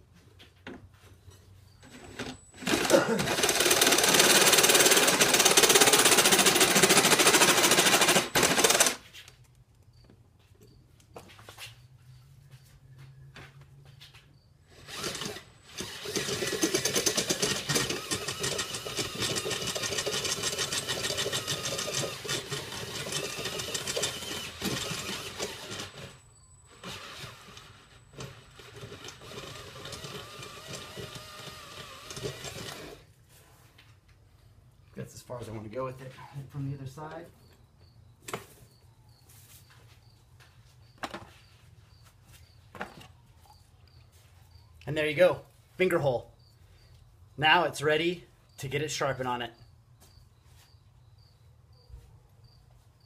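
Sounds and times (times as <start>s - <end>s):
cordless drill boring into steel: 2.2s - 9.0s, 14.7s - 33.0s.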